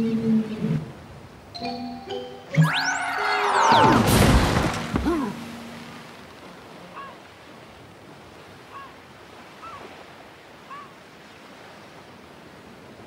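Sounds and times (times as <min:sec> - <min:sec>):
surf washing: 0:03.2 - 0:13.0.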